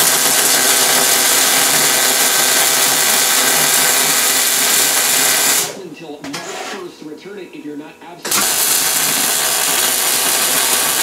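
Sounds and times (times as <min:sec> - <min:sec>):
welder arc running: 0:00.0 - 0:05.8, 0:08.3 - 0:11.0.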